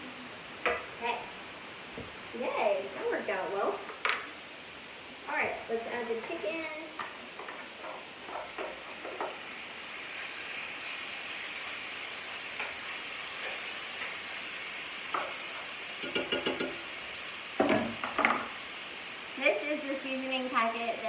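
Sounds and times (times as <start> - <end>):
chicken sizzling in oil: 7.7 - 21.0.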